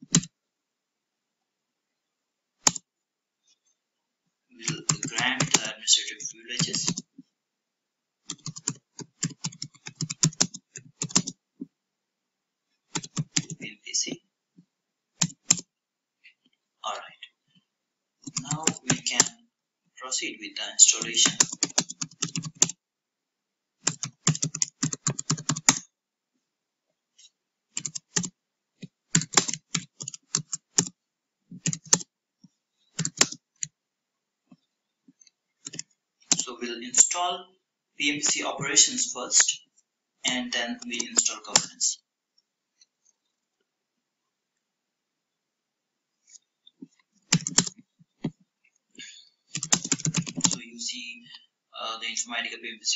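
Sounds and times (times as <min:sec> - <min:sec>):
computer keyboard typing: 0:00.0 - 0:00.3, 0:02.6 - 0:02.8, 0:04.6 - 0:05.7, 0:06.6 - 0:07.1, 0:08.3 - 0:11.4, 0:12.9 - 0:13.6, 0:15.2 - 0:15.7, 0:18.2 - 0:19.4, 0:20.8 - 0:22.8, 0:23.8 - 0:25.8, 0:27.7 - 0:30.9, 0:31.6 - 0:32.1, 0:32.9 - 0:33.7, 0:35.6 - 0:37.2, 0:40.8 - 0:41.8, 0:46.8 - 0:48.3, 0:49.5 - 0:50.6.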